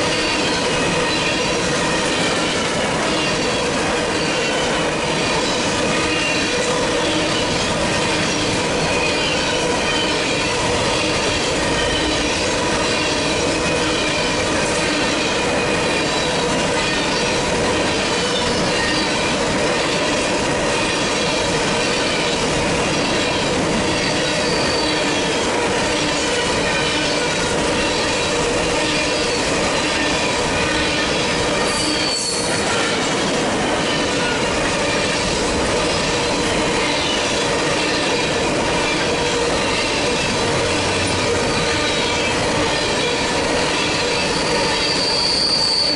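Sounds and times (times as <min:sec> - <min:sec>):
steel wheels rolling on rail: 0:00.0 - 0:45.9
wheel squeal: 0:23.0 - 0:25.2, 0:28.8 - 0:32.9, 0:41.0 - 0:45.9.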